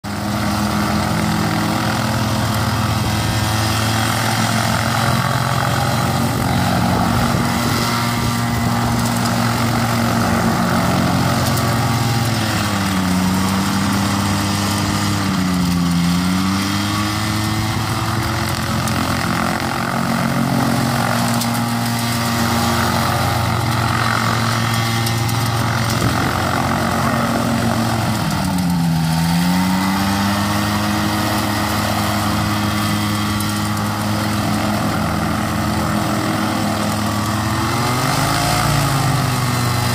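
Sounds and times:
light aircraft engine and propeller: 0.0s - 39.9s.

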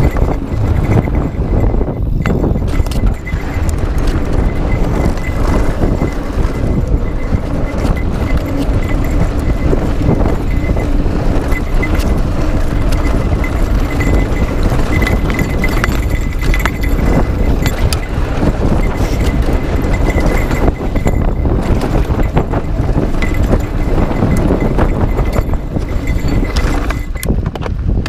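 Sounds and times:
bike knocks and rattles: 0.0s - 28.0s
bike tyres rumbling on dirt: 0.0s - 28.0s.

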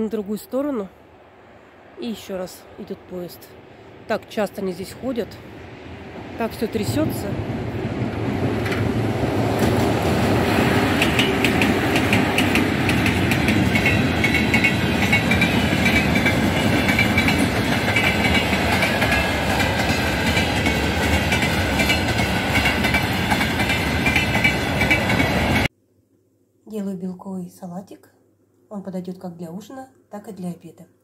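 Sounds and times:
freight train rumbling: 2.1s - 25.7s
wheels clacking over rail joints: 8.0s - 25.7s.

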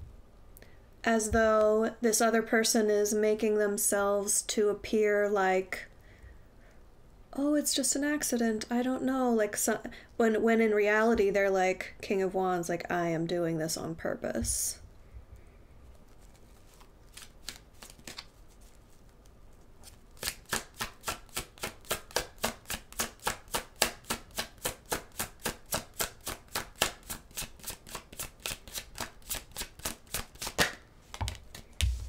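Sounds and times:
cards slapping while shuffled: 16.1s - 19.2s, 19.8s - 32.0s.

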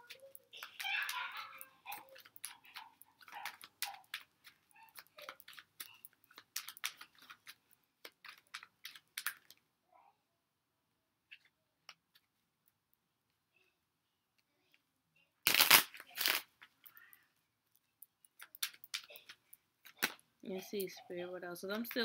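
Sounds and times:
cards being shuffled: 0.0s - 9.6s, 15.4s - 16.8s, 18.4s - 20.2s.

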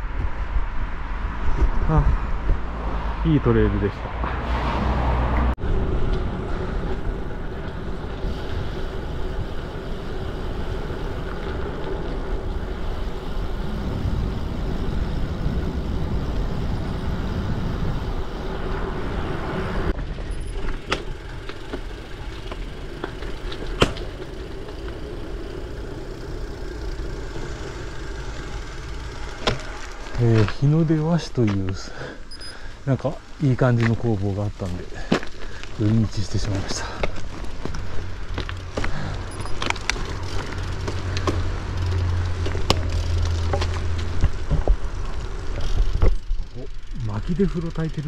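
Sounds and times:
wind rushing over microphone: 0.0s - 20.0s
bike tyre rumble: 0.0s - 48.0s.

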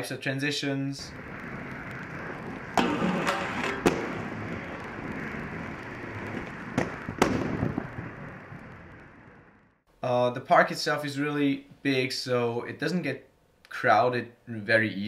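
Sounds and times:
skate wheels rolling on concrete: 1.0s - 9.8s
skates clacking on ground: 1.1s - 8.6s.

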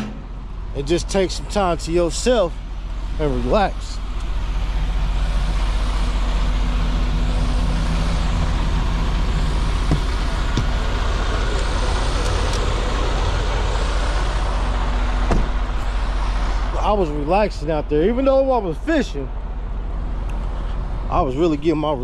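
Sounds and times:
car engine drone: 0.0s - 22.0s
road noise in car cabin: 0.0s - 22.0s.

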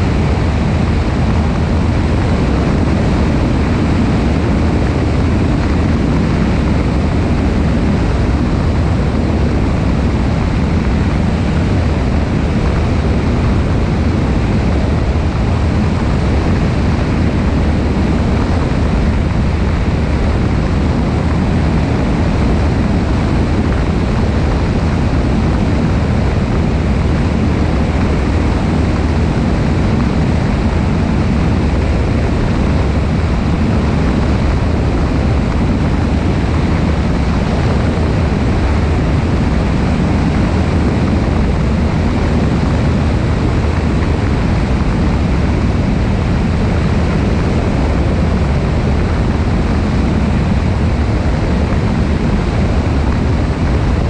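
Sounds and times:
propeller plane engine drone: 0.0s - 54.0s
wind rushing over microphone: 0.0s - 54.0s.

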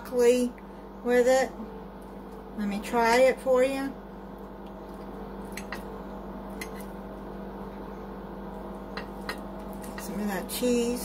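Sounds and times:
electrical hum: 0.0s - 11.0s
fork clicking on plate: 5.5s - 5.8s, 6.6s - 6.9s.

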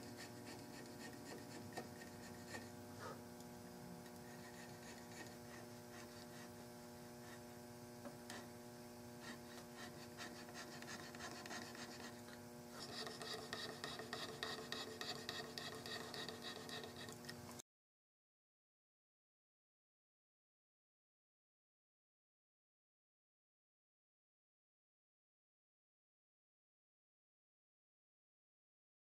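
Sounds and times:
hand tool scraping wood: 0.0s - 3.2s, 4.2s - 7.5s, 9.2s - 17.2s
faint steady hum: 0.0s - 17.6s.

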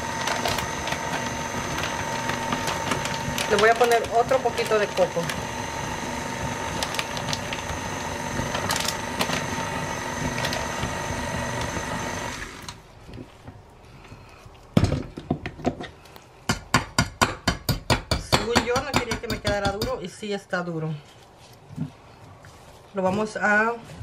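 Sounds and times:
stand mixer whirring: 0.0s - 12.8s.

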